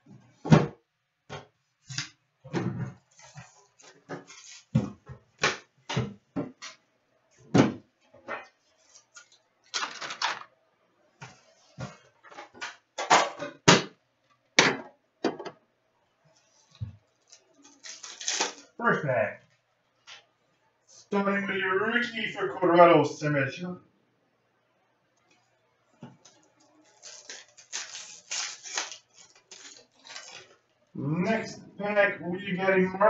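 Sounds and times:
wrapping crinkling and tearing: 8.8s - 10.5s, 16.6s - 18.8s, 26.2s - 30.8s.

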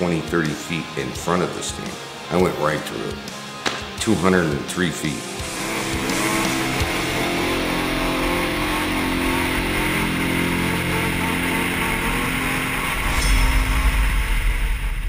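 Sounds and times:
motorcycle engine revving: 5.3s - 15.0s.

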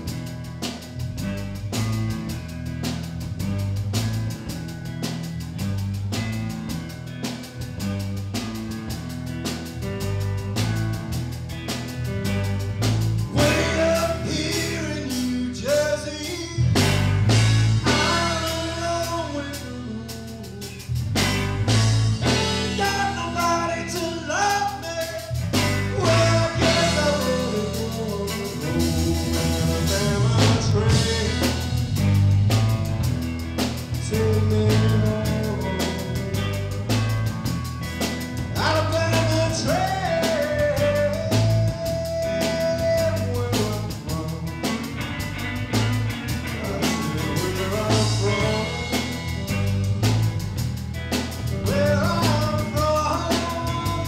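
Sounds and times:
drum kit: 0.0s - 54.0s
electric guitar: 0.0s - 54.0s
man singing: 13.2s - 21.1s, 22.2s - 32.2s, 33.8s - 37.0s, 38.5s - 45.2s, 46.3s - 50.3s, 51.4s - 54.0s.

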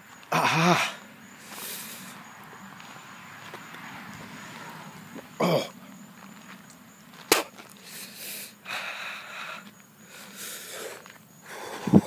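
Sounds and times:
man breathing hard: 0.3s - 2.2s, 7.8s - 12.0s.

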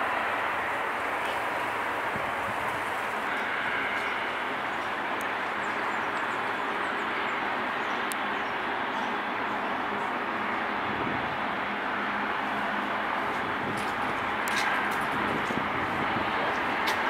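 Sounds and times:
distant jet engine roar: 0.0s - 17.0s.

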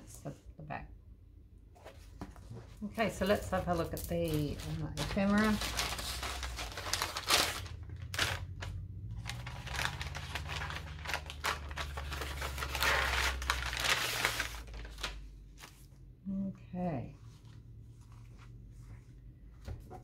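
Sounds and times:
fabric bag rustling and crinkling: 2.9s - 15.8s.

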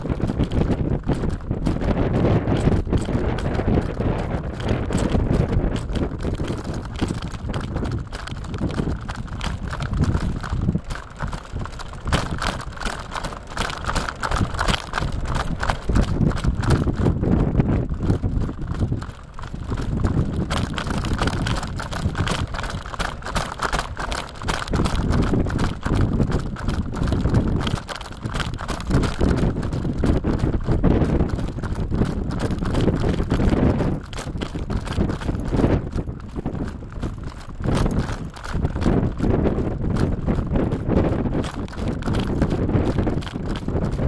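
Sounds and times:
bicycle rattling and clattering: 0.0s - 44.0s
constant low rumble: 0.0s - 44.0s.

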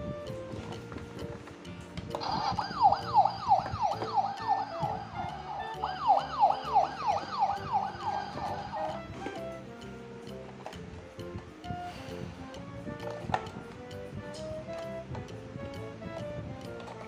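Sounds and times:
toy fire truck siren wailing: 2.2s - 9.9s.

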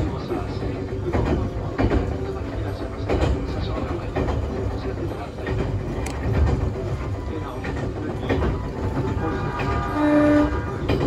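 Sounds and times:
rail-joint clicks: 0.0s - 11.0s
train low rumble: 0.0s - 11.0s.

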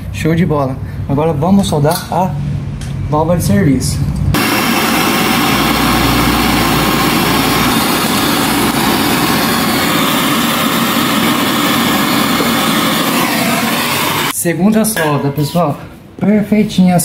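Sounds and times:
brazing torch flame hissing: 4.4s - 14.4s.

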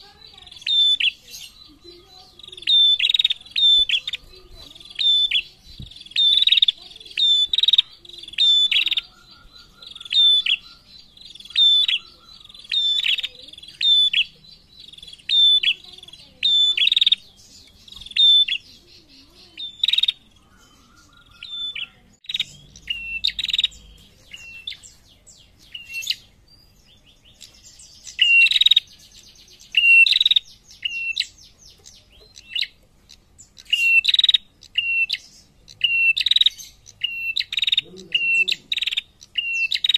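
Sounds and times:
buzzy bird chattering: 0.0s - 39.9s.

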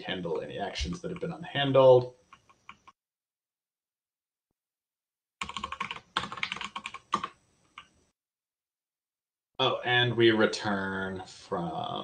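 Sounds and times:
typing on computer keyboard: 2.3s - 3.0s, 5.4s - 7.9s.

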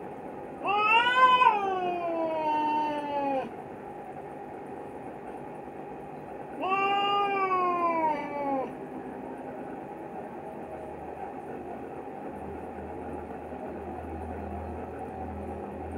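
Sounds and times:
cat yowling: 0.6s - 3.5s, 6.6s - 8.7s.

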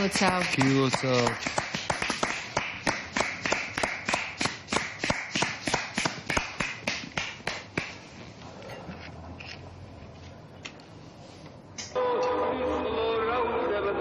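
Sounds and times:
people clapping in rhythm: 0.0s - 8.0s.

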